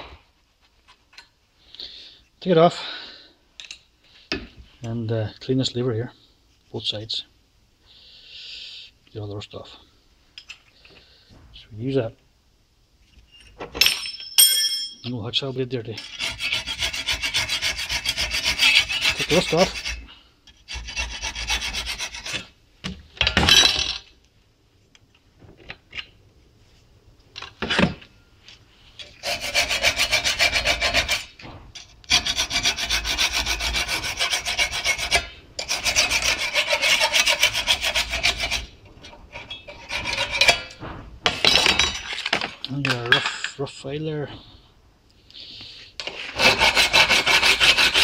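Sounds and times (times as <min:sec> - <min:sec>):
hacksaw blade scraping rusty steel: 0:16.0 - 0:22.5, 0:29.0 - 0:42.4, 0:46.0 - 0:48.0.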